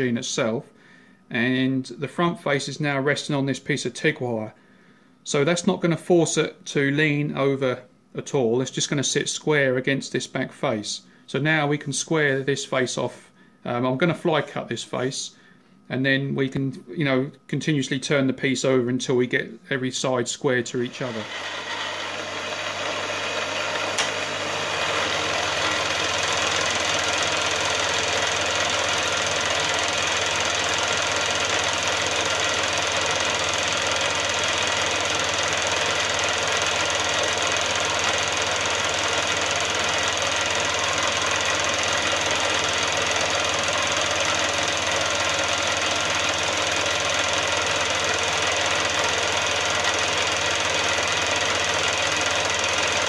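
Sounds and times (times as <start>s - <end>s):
milling machine cutting steel: 20.9s - 53.0s.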